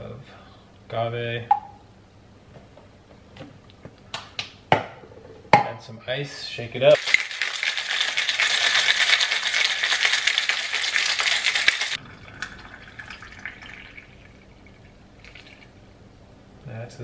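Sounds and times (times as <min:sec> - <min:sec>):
ice rattling in cocktail shaker: 0:07.0 - 0:15.7
liquid pouring into glass: 0:07.0 - 0:15.8.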